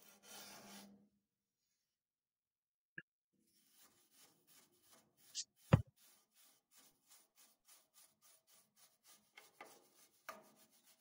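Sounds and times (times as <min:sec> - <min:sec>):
brush scrubbing sand off sheet metal: 0:00.0 - 0:01.0, 0:03.5 - 0:11.0.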